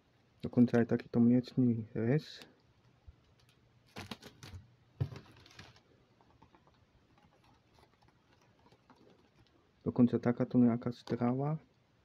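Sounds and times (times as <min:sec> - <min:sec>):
clicks and plastic rustling: 0:02.4 - 0:09.6.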